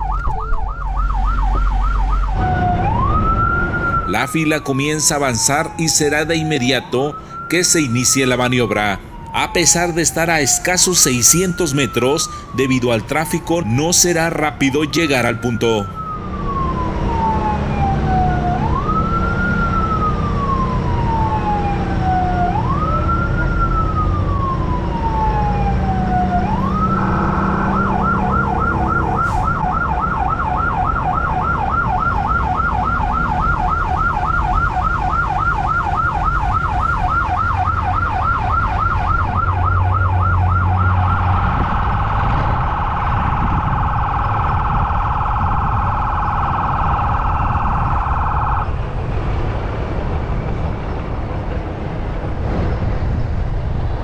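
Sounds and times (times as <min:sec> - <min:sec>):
electronic emergency siren: 0:00.0 - 0:49.2
truck engine running: 0:19.7 - 0:54.0.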